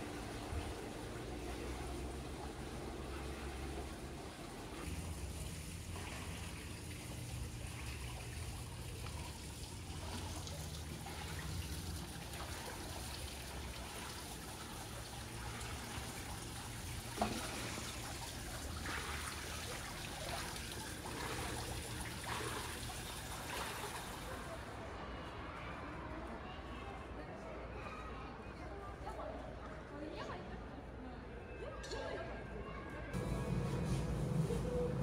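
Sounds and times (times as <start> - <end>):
water trickling: 0.0 - 24.4
low background rumble: 33.2 - 35.0.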